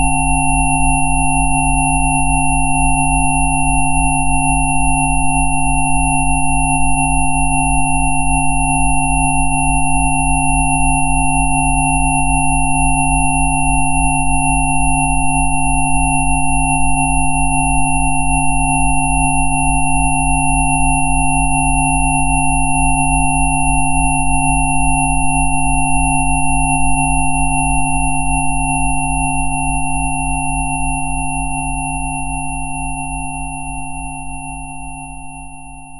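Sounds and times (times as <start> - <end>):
synthesised sine tones: 0.0 - 35.9.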